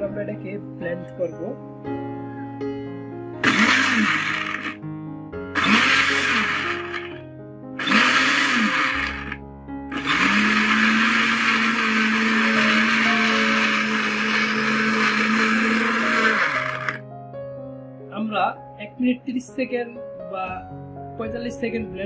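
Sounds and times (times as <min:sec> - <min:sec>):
blender motor chopping: 0:03.4 - 0:04.8, 0:05.6 - 0:07.2, 0:07.8 - 0:17.0.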